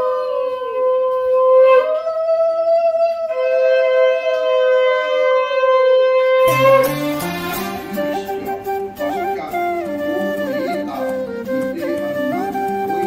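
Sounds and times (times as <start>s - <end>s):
conch shells blown: 3.3s - 13.0s.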